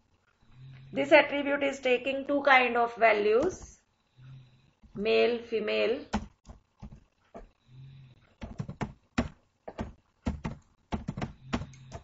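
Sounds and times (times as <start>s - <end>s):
computer keyboard typing: 6.1s - 7.0s, 8.4s - 12.0s.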